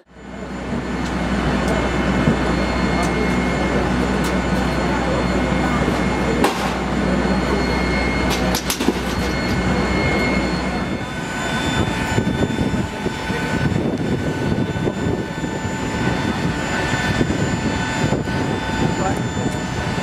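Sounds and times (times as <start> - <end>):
aircraft auxiliary power unit whine: 0.0 - 20.0
low hum with clicks: 1.0 - 3.5, 8.2 - 9.7.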